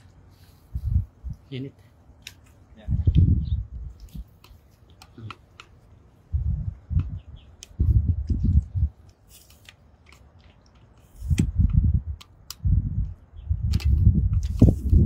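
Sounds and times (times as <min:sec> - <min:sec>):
low rumbling on microphone: 0:00.7 - 0:01.4, 0:02.8 - 0:04.0, 0:06.3 - 0:09.0.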